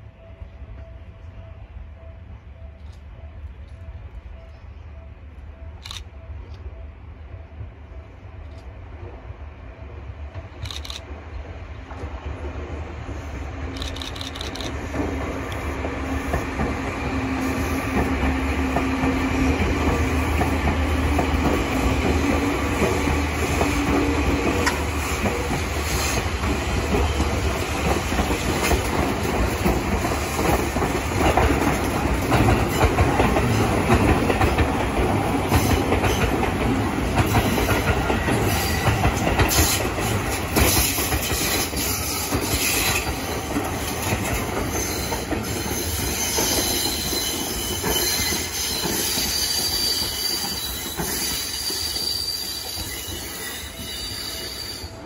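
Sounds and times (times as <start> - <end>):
steady low tone: 0.0 - 10.4
train rolling rumble: 0.0 - 55.0
wheels clacking over rail joints: 13.7 - 52.0
wheel squeal: 44.7 - 55.0.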